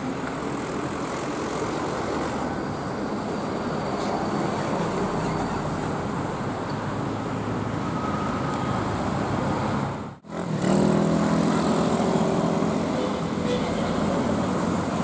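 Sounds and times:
bus engine humming: 0.0 - 10.5
bus engine rushing past: 0.0 - 15.0
road traffic: 0.0 - 15.0.

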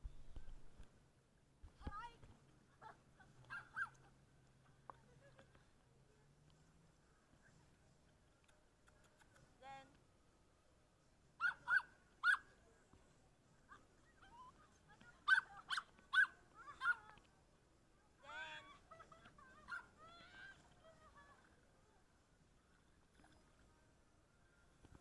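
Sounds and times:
dog yelping and whining: 3.4 - 4.0, 11.4 - 12.5, 15.3 - 17.1.

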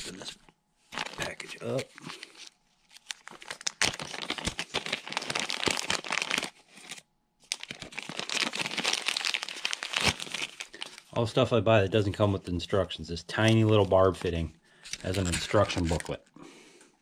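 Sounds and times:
package crinkling and rustling: 0.9 - 11.2, 13.3 - 16.3.

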